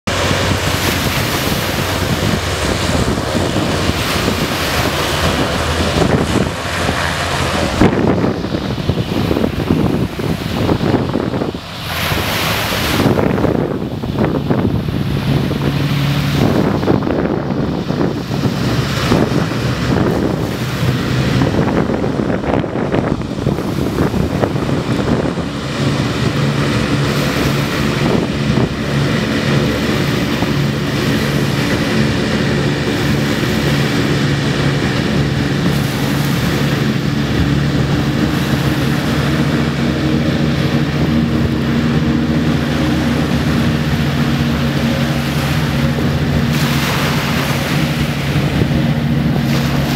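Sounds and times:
hovercraft engine drone: 0.0s - 49.9s
rush of spray and wind: 0.0s - 49.9s.

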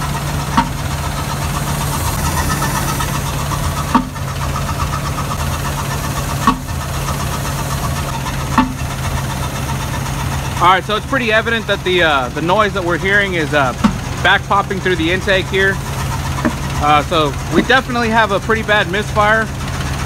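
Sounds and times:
engine idling roughly: 0.0s - 20.0s
sharp engine pops: 0.4s - 7.3s, 8.5s - 9.0s, 13.6s - 14.3s.

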